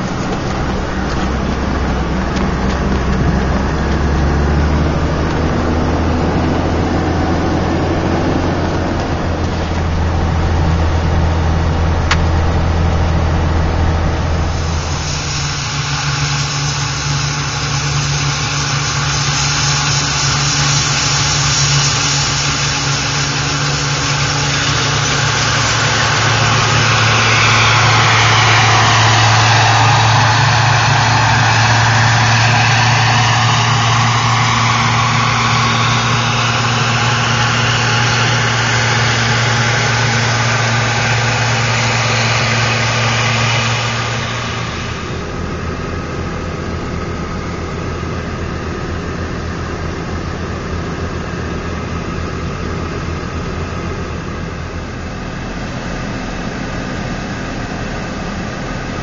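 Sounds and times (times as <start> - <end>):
combine harvester engine hum: 0.0 - 59.0
auger pouring grain: 14.2 - 46.0.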